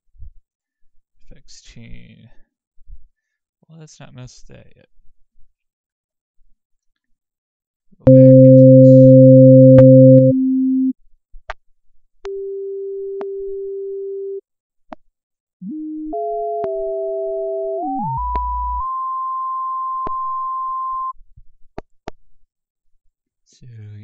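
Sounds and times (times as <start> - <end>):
synthesizer tones: 8.1 - 10.9, 15.6 - 21.1.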